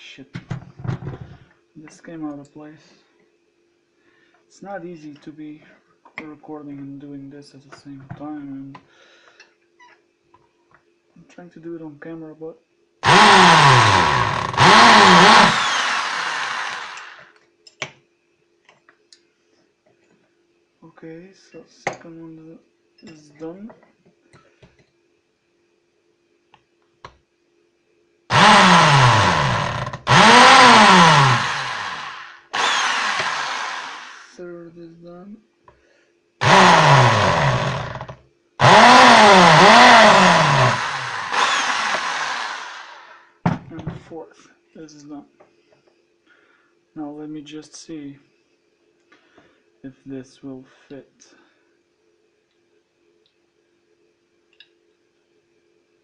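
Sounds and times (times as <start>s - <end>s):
electric drill boring through metal: 13.0s - 17.3s, 28.3s - 34.4s, 36.4s - 43.2s.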